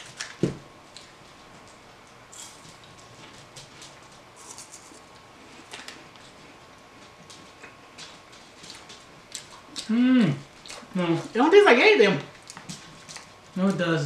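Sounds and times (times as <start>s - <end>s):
people chewing wafer bar: 2.0s - 11.2s.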